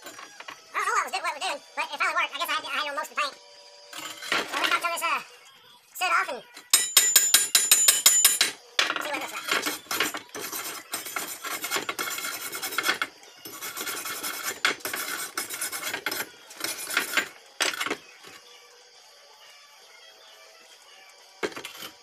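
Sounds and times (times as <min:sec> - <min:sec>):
metal-on-metal scraping: 0:03.9 - 0:04.8, 0:06.7 - 0:18.0
sharp metal knocks: 0:06.8 - 0:09.1.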